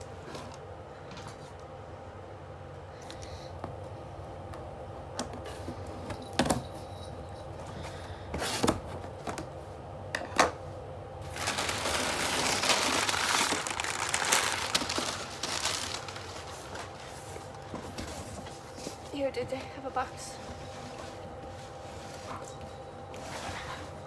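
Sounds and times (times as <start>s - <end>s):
packing material crinkling: 11.2s - 17.2s.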